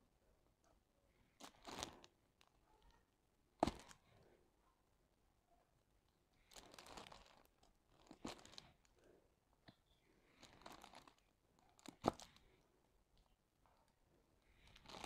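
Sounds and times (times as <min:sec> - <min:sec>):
plastic film crinkling: 0:01.4 - 0:02.1, 0:06.5 - 0:08.8, 0:10.4 - 0:12.4, 0:14.7 - 0:15.0.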